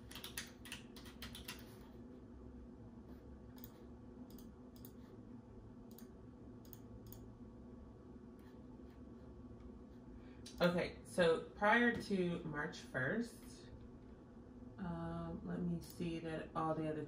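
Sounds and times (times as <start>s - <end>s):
computer keyboard typing: 0.0s - 2.0s, 3.5s - 5.1s, 5.9s - 7.3s.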